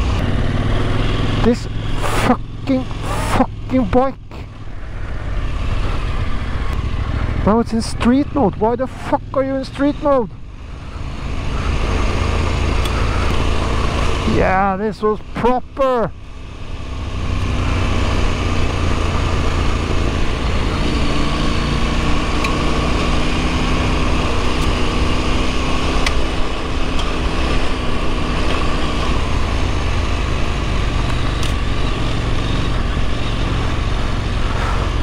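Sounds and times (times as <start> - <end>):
motorcycle engine running: 0.0 - 35.0
sharp ticks: 26.0 - 26.2.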